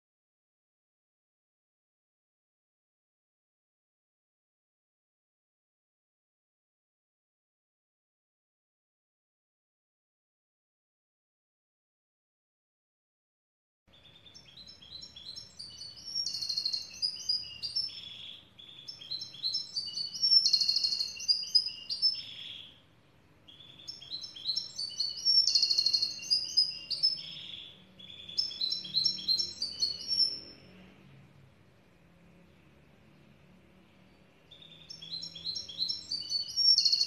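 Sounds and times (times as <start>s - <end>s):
bird twittering song: 13.9s - 31.0s, 34.0s - 37.0s.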